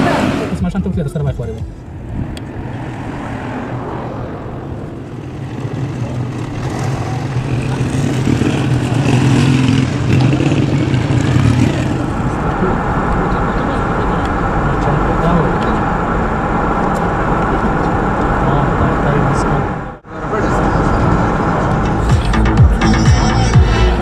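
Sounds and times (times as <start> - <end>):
engine hum: 0.0 - 24.0
road noise: 0.0 - 24.0.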